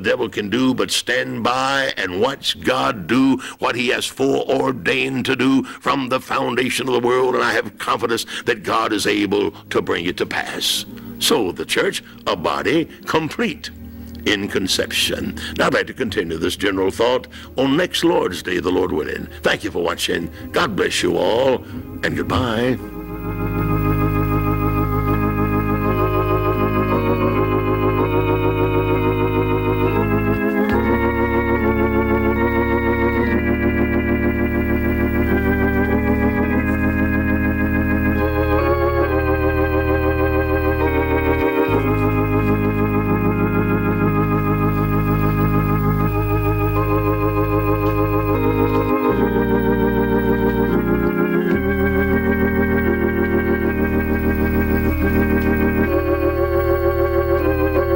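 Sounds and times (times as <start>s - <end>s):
organ playing slow chords: 0.0s - 57.9s.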